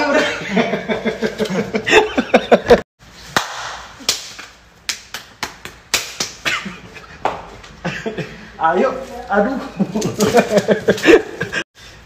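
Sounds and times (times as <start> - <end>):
people laughing: 0.0 - 2.8, 9.7 - 11.6
sharp smacks: 3.3 - 6.4.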